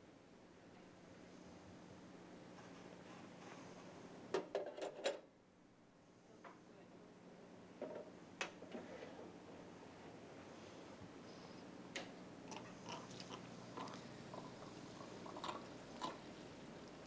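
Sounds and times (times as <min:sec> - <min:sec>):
faint steady hiss: 0:05.1 - 0:17.0.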